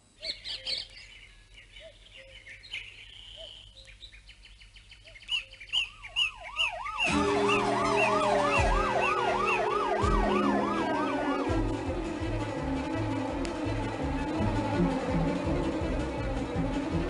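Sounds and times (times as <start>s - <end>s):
birds chirping: 0.0s - 10.8s
emergency siren wailing: 5.9s - 17.0s.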